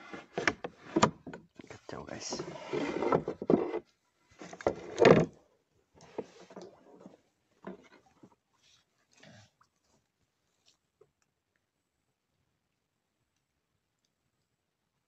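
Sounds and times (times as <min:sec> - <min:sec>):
knocks and scrapes on boat hull: 0:00.0 - 0:05.4, 0:06.0 - 0:08.4.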